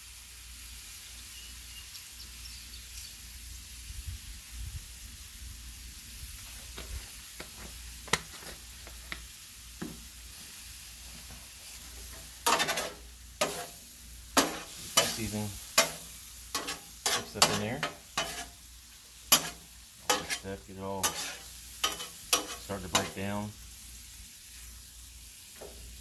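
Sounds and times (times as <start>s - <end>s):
food sizzling on griddle: 0.0s - 26.0s
metal spatula scraping griddle: 11.6s - 23.4s.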